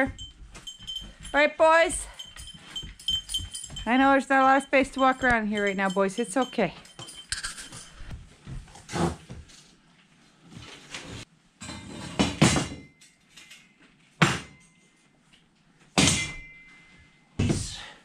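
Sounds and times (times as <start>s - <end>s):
metal parts clattering on floor: 5.6s - 8.1s.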